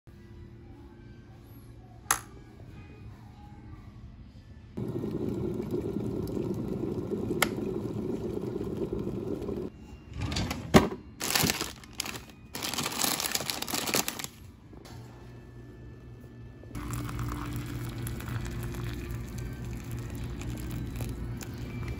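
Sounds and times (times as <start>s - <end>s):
kettle heating water hiss: 4.8s - 9.7s
wrappers crinkling: 11.2s - 14.5s.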